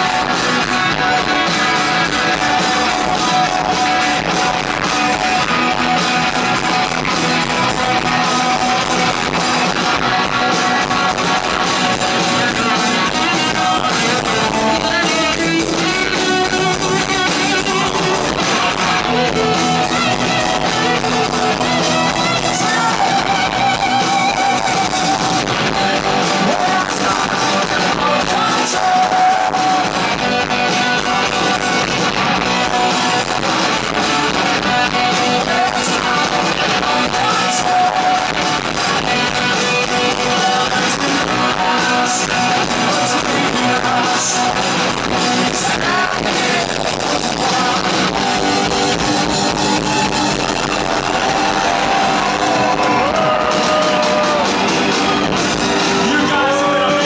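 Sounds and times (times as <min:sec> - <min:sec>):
live rock band playing: 0:00.0 - 0:57.0
man singing: 0:07.0 - 0:54.7, 0:55.9 - 0:57.0.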